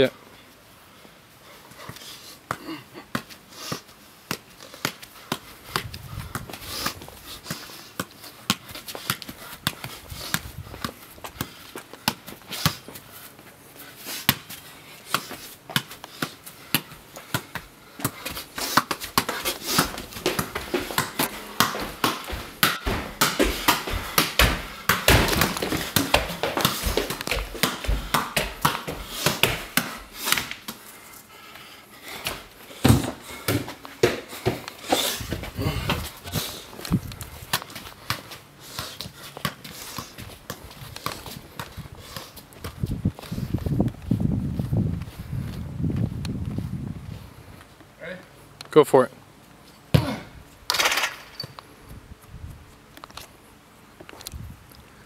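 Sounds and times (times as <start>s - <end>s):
ball kicked with bare feet: 2.4s - 13.0s, 14.2s - 30.8s, 32.2s - 46.8s, 49.9s - 51.6s.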